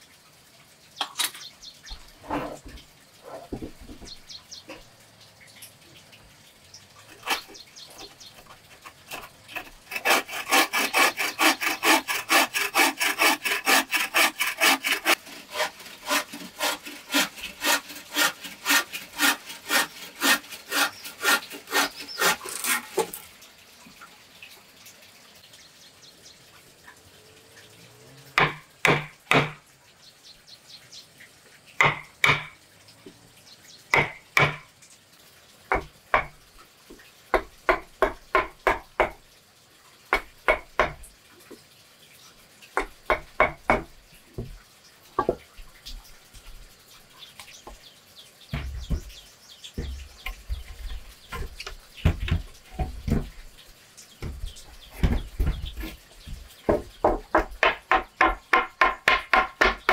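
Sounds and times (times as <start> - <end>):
hammer knocking on wood: 48.5 - 49.1, 49.8 - 50.7, 55.0 - 59.9.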